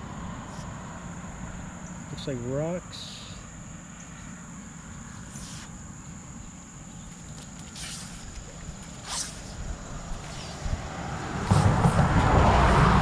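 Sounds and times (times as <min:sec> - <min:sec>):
faint steady high whine: 0:00.0 - 0:11.0
scraping rustles: 0:07.0 - 0:10.8
low wind-like rumble: 0:08.2 - 0:13.0.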